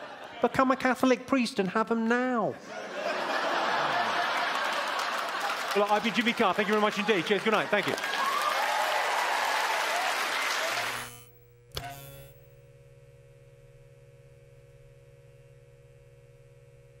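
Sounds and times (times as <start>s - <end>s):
audience applauding: 3.4s - 11.0s
click: 11.0s - 12.4s.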